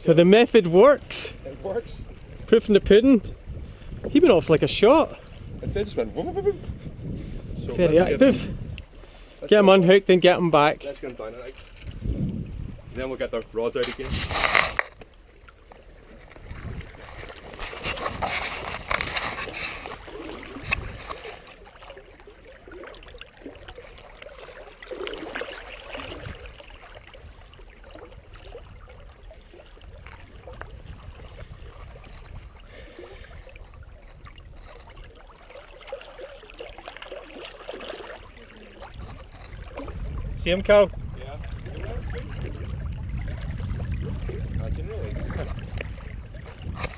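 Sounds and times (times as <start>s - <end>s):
seawater lapping against rocks: 0.0s - 46.9s
water gurgling: 9.5s - 46.9s.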